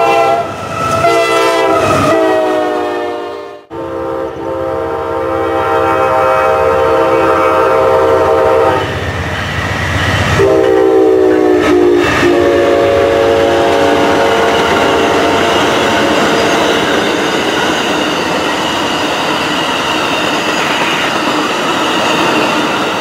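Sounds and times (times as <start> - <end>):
train rumble and clickety-clack: 0.0 - 2.6, 6.6 - 23.0
train air horn blasts: 0.0 - 9.0, 10.3 - 15.5.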